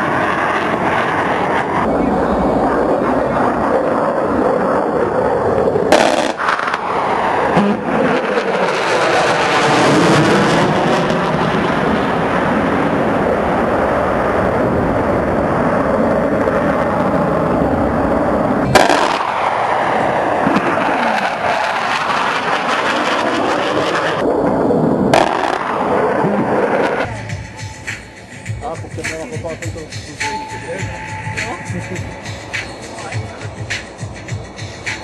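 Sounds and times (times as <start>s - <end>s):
jet engine roar: 0.0s - 35.0s
sudden sharp cracks: 5.9s - 6.9s, 18.7s - 19.6s, 25.1s - 25.8s.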